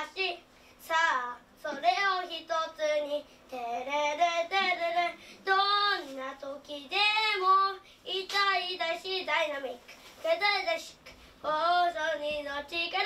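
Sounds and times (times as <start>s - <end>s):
child singing unaccompanied: 0.0s - 13.0s.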